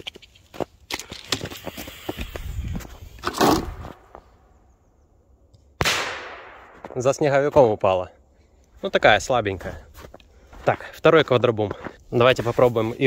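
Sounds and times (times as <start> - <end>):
firecracker bang with echo: 5.8 - 7.0.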